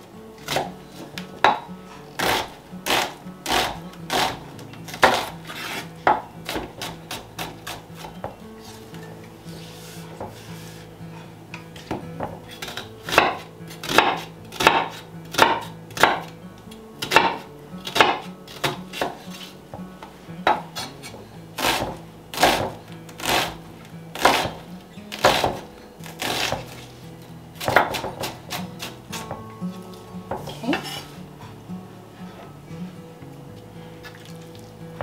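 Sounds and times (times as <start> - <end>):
knife chopping on wooden board: 0.4 - 8.4, 11.8 - 16.3, 17.0 - 19.5, 20.4 - 23.6, 24.2 - 26.8, 27.6 - 29.4.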